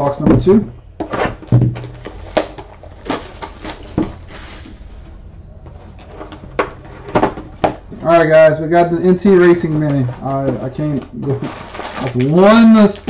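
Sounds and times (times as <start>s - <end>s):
plastic wrap crinkling: 1.7s - 5.2s, 9.1s - 13.0s.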